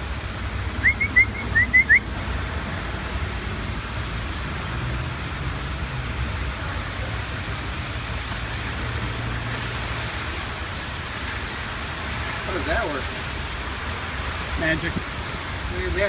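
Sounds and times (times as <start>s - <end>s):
heavy rain on pavement: 0.0s - 16.0s.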